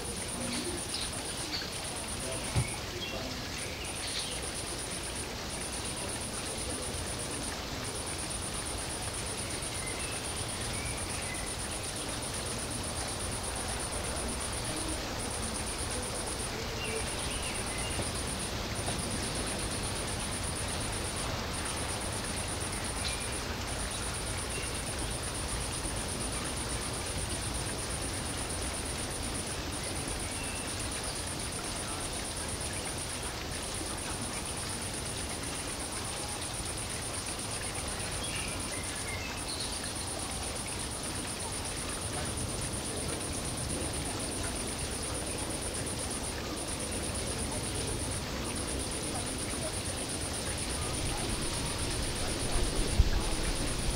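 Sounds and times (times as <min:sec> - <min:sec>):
faint chirps: 0:00.0 - 0:53.9
high-pitched hiss: 0:00.0 - 0:53.9.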